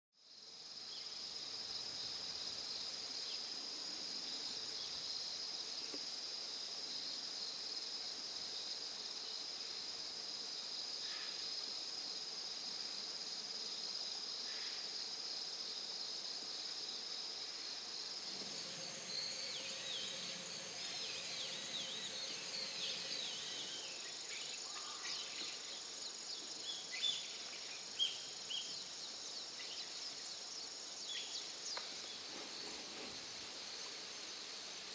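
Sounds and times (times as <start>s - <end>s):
insects trilling: 16.0s - 34.9s
high pulsed insect chirping: 17.6s - 34.9s.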